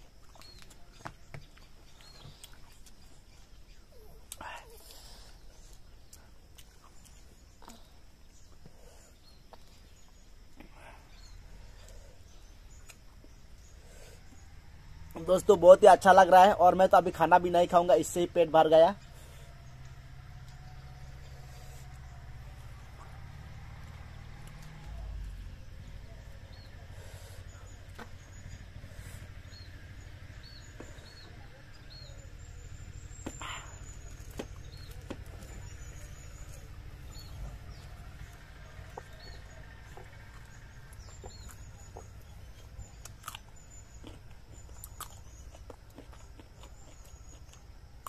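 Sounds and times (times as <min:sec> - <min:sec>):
small bird chirping: 0:00.0 - 0:15.6, 0:17.9 - 0:48.0
low steady rumble: 0:18.9 - 0:48.0
person chewing: 0:41.2 - 0:48.0.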